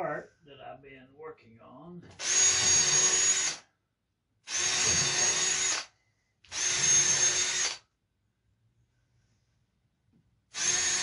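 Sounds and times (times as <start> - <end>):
power drill bursts: 2.2 - 3.6, 4.5 - 5.9, 6.5 - 7.8, 10.5 - 11.0.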